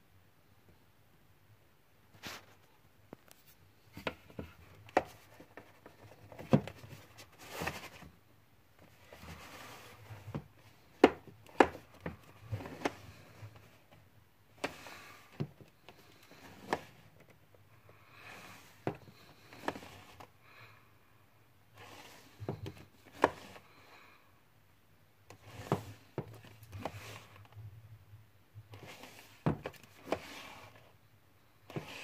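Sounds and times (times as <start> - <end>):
cases sliding on wooden shelf: 4.0 - 8.1, 8.9 - 13.9, 14.6 - 17.1, 18.1 - 20.3, 21.8 - 23.7, 25.3 - 27.5, 28.7 - 30.9, 31.7 - 32.0.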